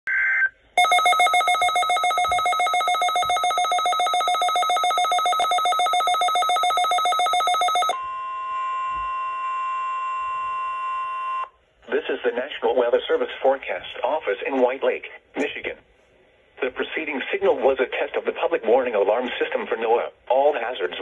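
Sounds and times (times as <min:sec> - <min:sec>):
rapid pulsing beep: 0:00.8 - 0:08.0
steady warning alarm tone: 0:00.8 - 0:11.5.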